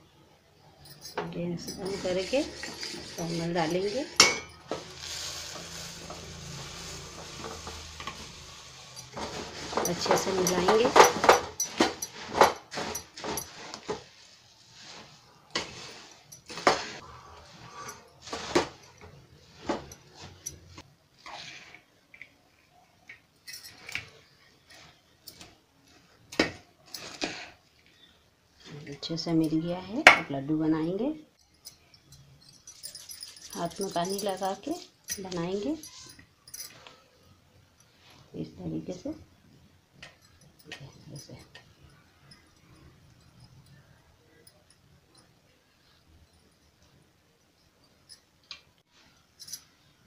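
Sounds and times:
metal spoon scraping steel pot: 1.6 - 13.9
puffed rice pouring into pot: 4.7 - 10.0.

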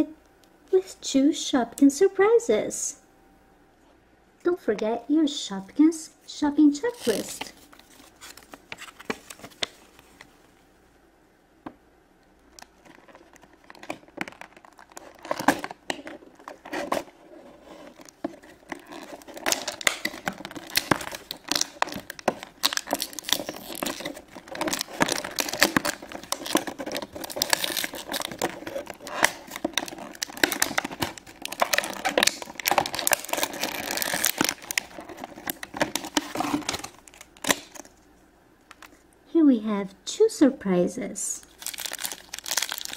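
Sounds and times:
packaging crinkling and rustling: 6.8 - 10.4, 12.4 - 38.1, 41.5 - 42.9.

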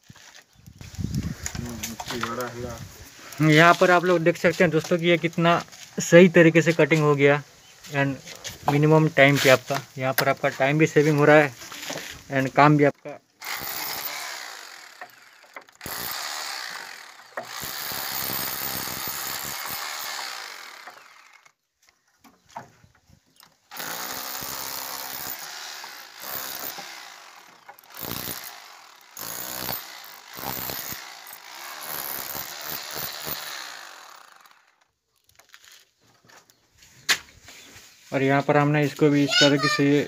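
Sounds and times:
hammer drill chiselling brick: 13.4 - 21.6, 23.6 - 34.8.

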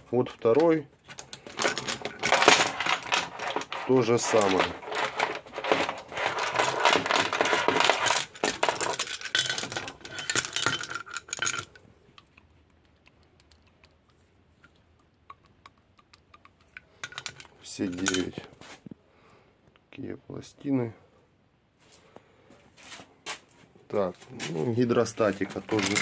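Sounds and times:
metal parts clinking: 0.2 - 11.8, 16.8 - 18.5, 25.0 - 26.0.

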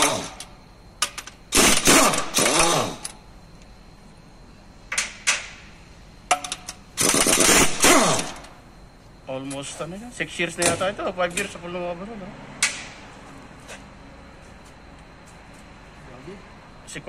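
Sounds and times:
impact wrench bursts: 0.0 - 3.2, 6.3 - 8.6.

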